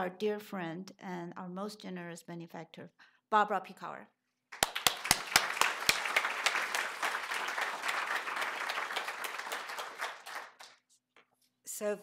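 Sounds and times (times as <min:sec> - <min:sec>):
audience applauding: 0:04.6 - 0:10.8.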